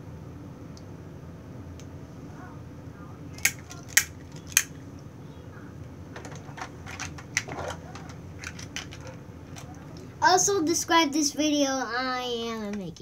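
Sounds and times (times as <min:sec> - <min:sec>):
low steady background noise: 0:00.0 - 0:13.0
hard objects tapping together: 0:03.4 - 0:04.8.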